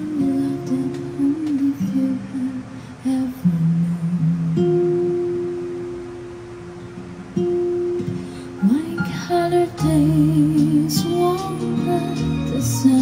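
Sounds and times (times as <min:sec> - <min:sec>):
person singing: 0:00.0 - 0:05.1, 0:08.6 - 0:13.0
plucked guitar: 0:00.0 - 0:13.0.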